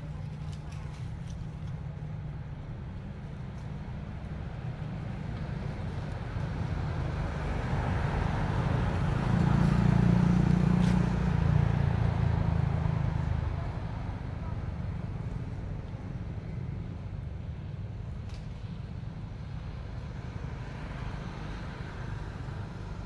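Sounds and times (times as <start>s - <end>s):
vehicle driving past: 5.6s - 15.2s.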